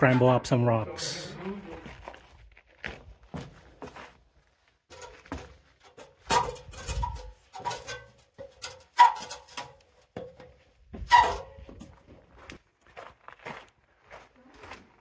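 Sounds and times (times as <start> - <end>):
footsteps on metal ladder rungs: 2.9 - 4.2, 4.8 - 12.6.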